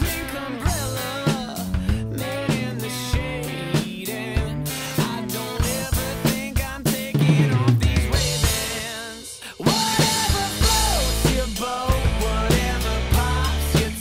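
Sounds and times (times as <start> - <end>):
band backing track: 0.0 - 14.0
drum kit playing: 0.0 - 14.0.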